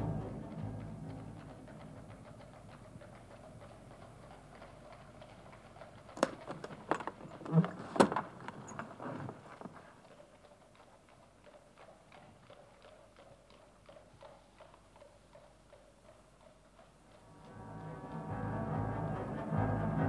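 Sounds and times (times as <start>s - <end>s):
faint even ticking: 0.0s - 7.6s.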